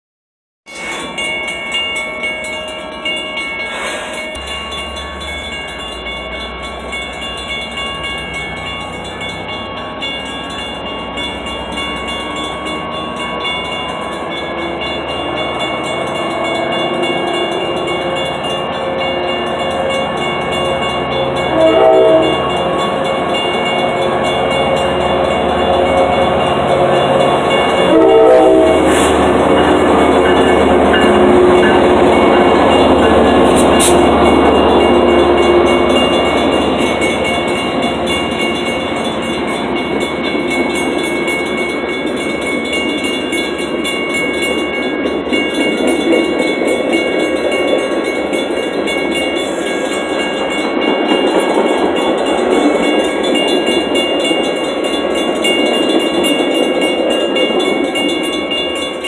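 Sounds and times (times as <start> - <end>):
diesel locomotive approaching: 0.6 - 59.0
train horn blasts: 20.6 - 23.0, 24.0 - 36.2.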